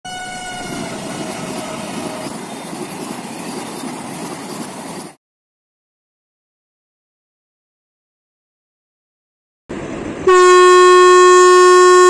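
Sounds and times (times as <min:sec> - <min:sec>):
train horn: 0:00.0 - 0:02.3, 0:10.2 - 0:12.0
train coaches running on track: 0:00.0 - 0:05.2.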